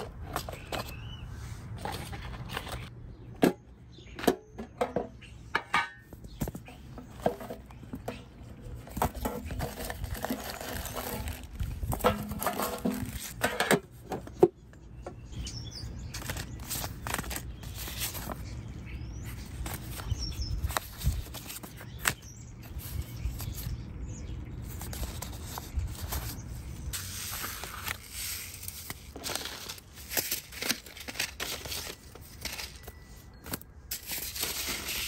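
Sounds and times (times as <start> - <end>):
paper packets rustling: 8.7 - 13.5, 15.9 - 23.8, 24.6 - 35.0.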